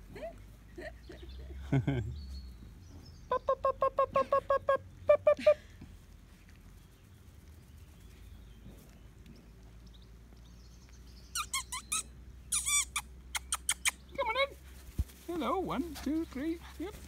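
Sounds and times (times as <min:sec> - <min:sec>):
puppies yipping: 0:11.4 - 0:14.0.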